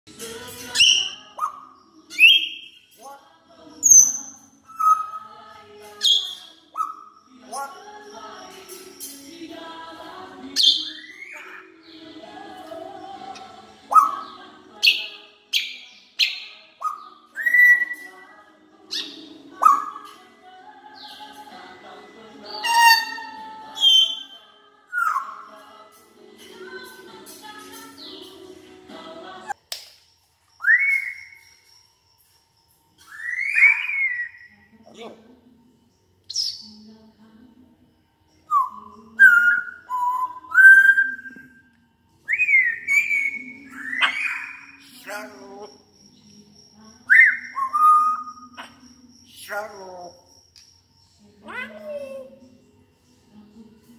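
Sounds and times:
parrot chirp: 0.6s - 3.0s, 3.8s - 9.2s, 9.8s - 12.4s, 13.2s - 20.3s, 20.9s - 25.8s, 30.6s - 32.0s, 33.0s - 35.2s, 36.3s - 36.8s, 38.4s - 41.7s, 42.3s - 50.7s, 51.3s - 52.6s
parrot whistling: 3.8s - 5.4s, 22.5s - 25.6s, 30.6s - 31.5s, 33.0s - 34.6s, 38.5s - 41.6s, 42.3s - 45.3s, 47.1s - 48.8s
parrot whistled note: 22.6s - 24.3s.

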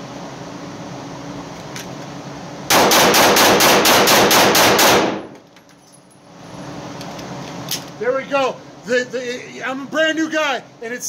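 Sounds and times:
pistol shots echoing indoors: 2.7s - 5.4s.

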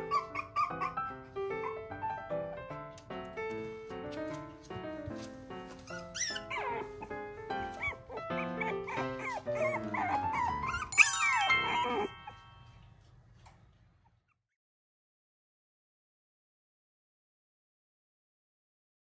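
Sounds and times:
puppy whimpering: 0.0s - 2.0s, 5.8s - 12.6s
light background music with keyboard: 0.0s - 13.1s.

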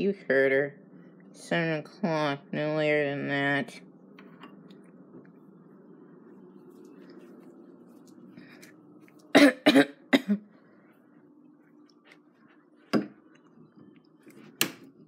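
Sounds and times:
faint low hum: 0.0s - 15.0s
person coughing: 9.3s - 10.5s.

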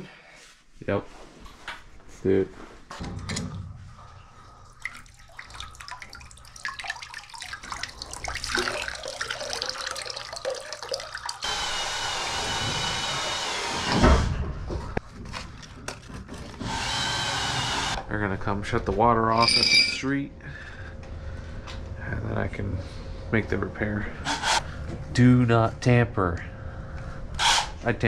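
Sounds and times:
metal tools clicking and scraping: 19.3s - 20.0s.

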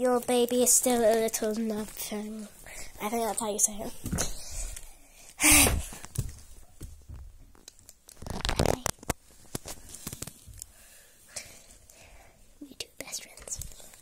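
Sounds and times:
packaging rustling and crinkling: 0.0s - 3.4s, 6.0s - 10.7s.

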